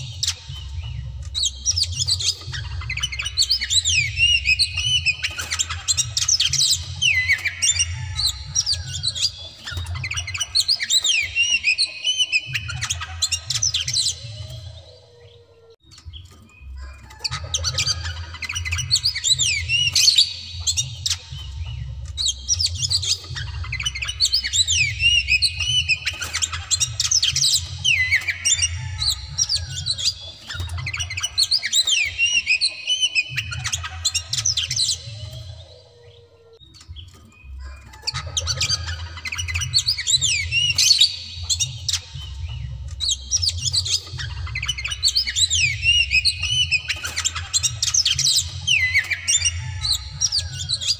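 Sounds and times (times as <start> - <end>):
bird singing whistled notes: 0.0 - 50.9.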